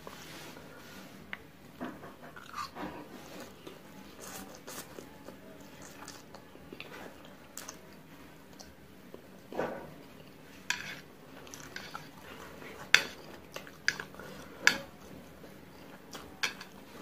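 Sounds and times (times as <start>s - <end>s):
wet chewing: 11.4s - 14.5s.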